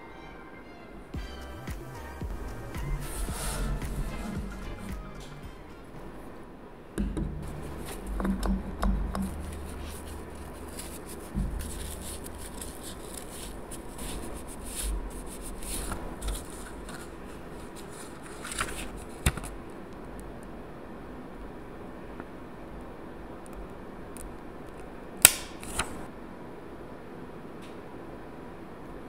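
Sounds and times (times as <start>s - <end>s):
low bumps: 1.2s - 16.9s
pad rubbing over nails: 2.8s - 4.5s, 9.2s - 19.4s
plastic sticker sheet handled: 9.1s - 19.6s
sharp click: 25.2s - 25.9s.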